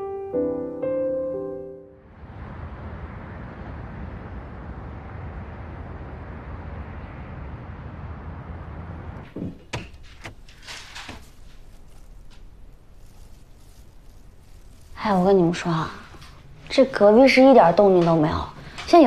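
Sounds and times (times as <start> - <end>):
city traffic rumble: 2.0 - 19.0
door unlatching clicks and knocks: 9.3 - 11.2.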